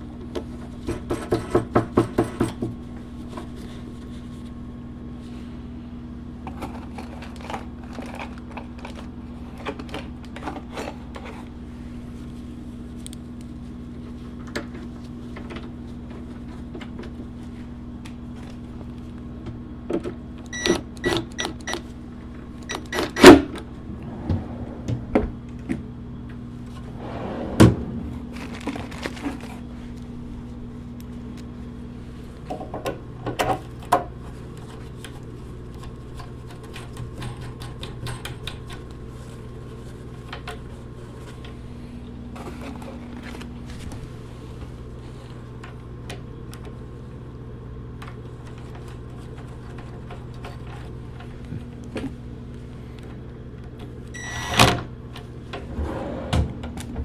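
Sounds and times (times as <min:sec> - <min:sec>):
steady low hum: 0:10.8 - 0:36.6.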